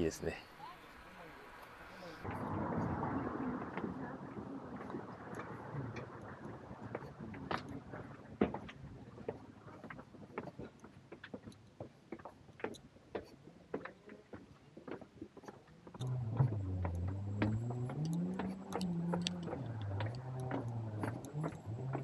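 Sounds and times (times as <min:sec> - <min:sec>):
footsteps on stone path: 0:03.6 - 0:22.0
vehicle engine revving: 0:16.0 - 0:22.0.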